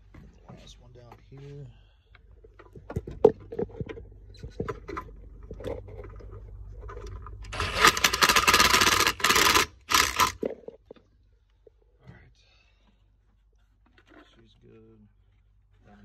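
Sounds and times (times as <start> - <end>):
cordless power driver running: 7.4 - 10.5.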